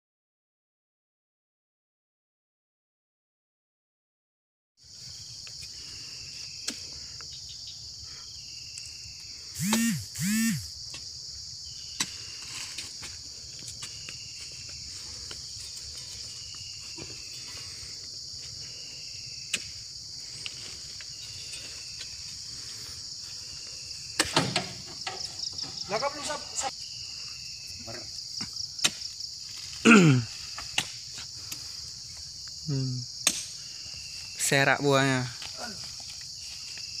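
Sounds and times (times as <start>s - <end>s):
insect drone: 4.8s - 37.0s
short rising and falling calls: 9.6s - 10.7s.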